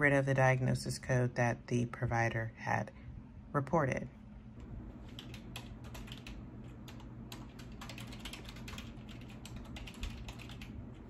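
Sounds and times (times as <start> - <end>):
low steady hum: 0.0 - 11.0
typing on computer keyboard: 5.0 - 10.8.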